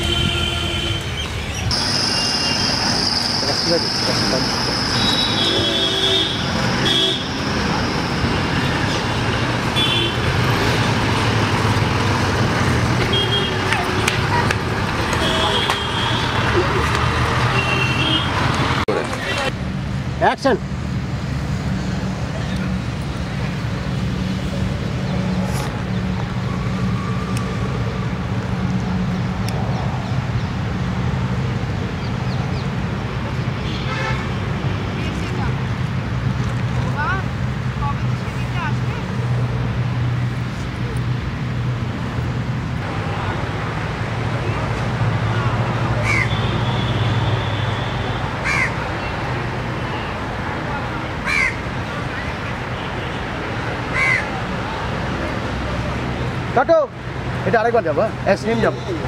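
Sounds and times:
car horn toots: 0.0s - 1.1s, 5.0s - 7.4s
road traffic passing: 0.0s - 59.0s.

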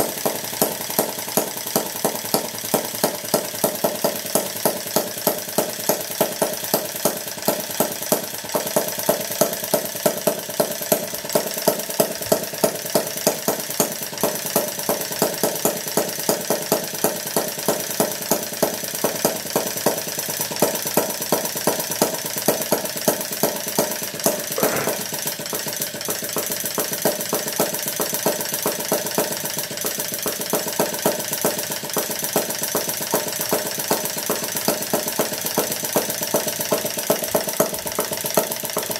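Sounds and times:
model engine rapid popping: 0.0s - 38.9s.

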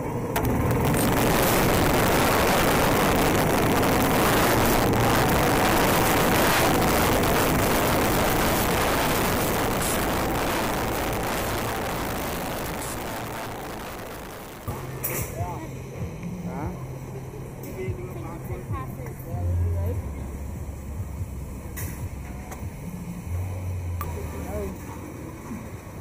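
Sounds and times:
go-kart motor: 0.0s - 15.3s
wind noise on microphone: 0.4s - 14.7s.

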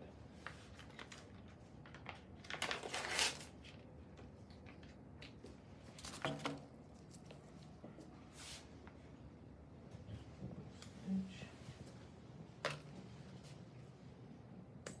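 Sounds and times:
packaging rustling: 0.8s - 3.7s
packet tearing open: 2.0s - 3.6s.

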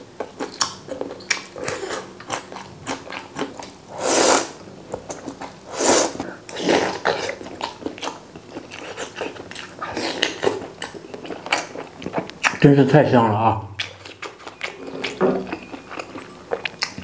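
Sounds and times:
wet chewing clicks: 0.2s - 3.8s, 6.5s - 12.7s, 13.8s - 17.0s
slurping noodles: 3.9s - 4.6s, 5.7s - 7.4s.

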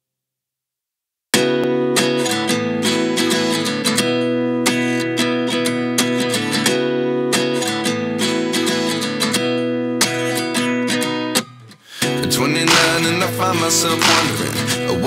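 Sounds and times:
acoustic guitar strumming: 1.4s - 15.0s.

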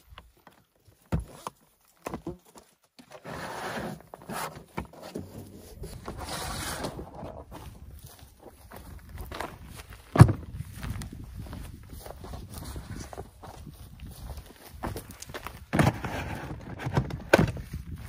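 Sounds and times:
plastic tote scraping: 3.1s - 7.6s, 15.7s - 17.6s.

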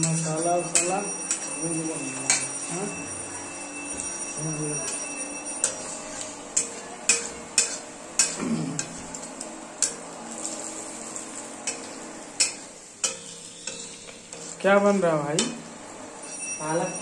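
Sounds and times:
metal spatula clacking on pan: 0.0s - 1.5s, 2.3s - 2.6s, 4.9s - 10.0s, 11.6s - 14.6s, 15.3s - 15.7s
onions sizzling in a pan: 0.0s - 17.0s.

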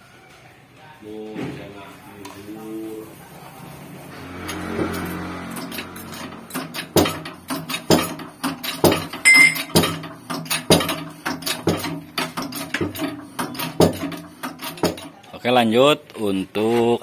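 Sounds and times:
hydraulic press metallic clanks: 4.5s - 15.2s.

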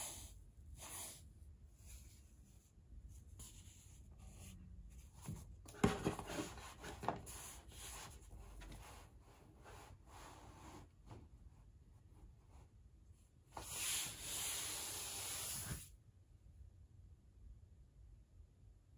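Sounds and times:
knocks and rustles on desk: 5.2s - 7.4s.

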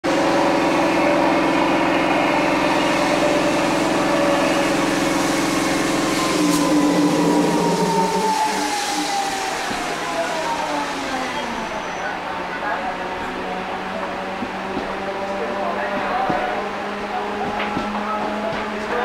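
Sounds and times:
electric train hum: 0.0s - 19.0s
train motor whine: 0.1s - 12.1s.

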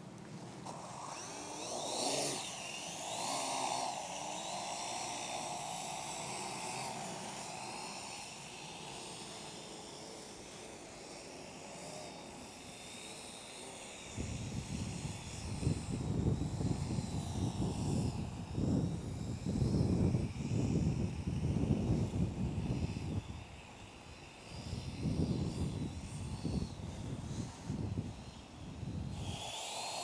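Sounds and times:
drone motors whining: 0.7s - 30.0s
wind rumble on microphone: 14.1s - 29.9s.

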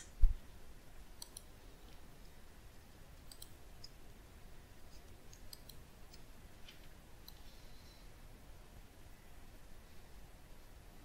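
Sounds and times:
computer mouse clicks: 1.2s - 2.0s, 3.2s - 4.0s, 4.9s - 7.5s.

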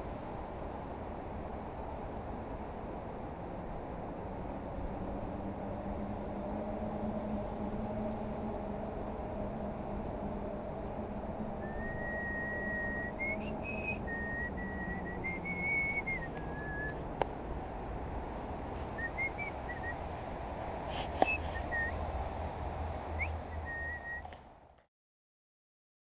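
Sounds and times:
low background rumble: 0.0s - 24.8s
person whistling a tune: 11.6s - 17.0s, 19.0s - 20.0s, 21.1s - 21.9s, 23.2s - 24.4s.

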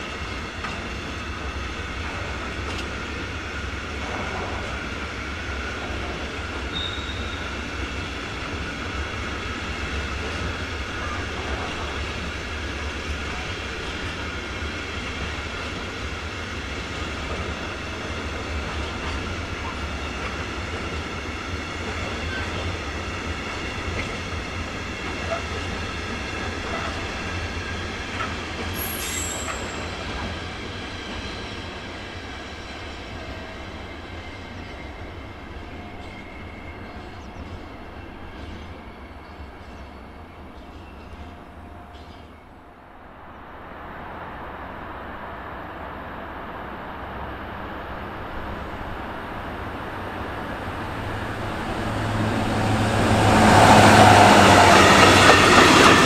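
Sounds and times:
freight train rumbling on rails: 0.0s - 56.0s
brief high hiss: 28.8s - 29.8s
high steady whine: 43.3s - 51.4s.

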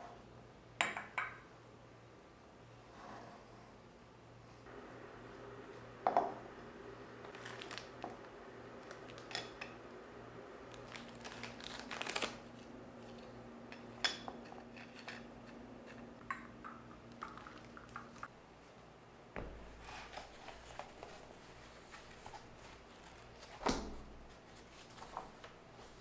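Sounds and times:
cracker packet crinkling: 7.3s - 9.6s, 10.7s - 13.3s
dishes and cups set on table: 9.0s - 10.6s, 13.0s - 18.3s.

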